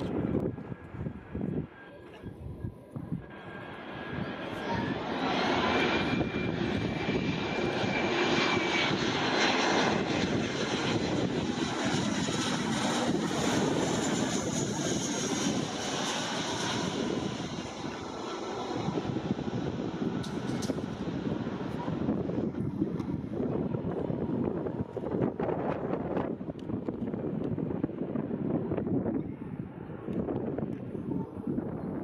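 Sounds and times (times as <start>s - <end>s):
high jet engine whine: 0.0s - 32.0s
jet airliner passing: 0.0s - 32.0s.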